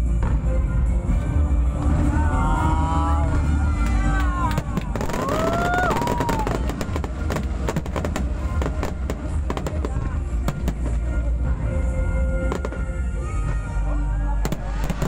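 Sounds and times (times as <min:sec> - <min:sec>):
firework bangs and crackles: 0:00.0 - 0:11.7, 0:12.4 - 0:13.6, 0:14.4 - 0:15.0
deep rumble: 0:00.0 - 0:15.0
firework whistling: 0:04.6 - 0:11.0, 0:14.5 - 0:15.0.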